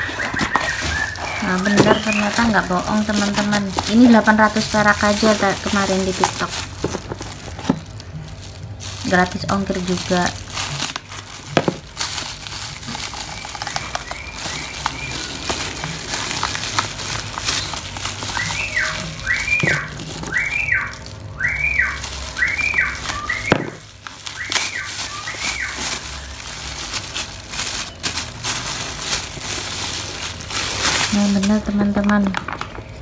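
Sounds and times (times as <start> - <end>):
plastic bag crinkling: 0.0 - 33.0
high whistled tone: 18.3 - 23.7.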